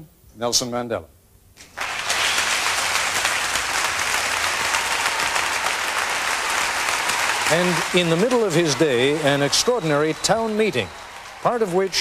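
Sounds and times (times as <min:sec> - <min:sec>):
audience applauding: 0:01.6 - 0:12.0.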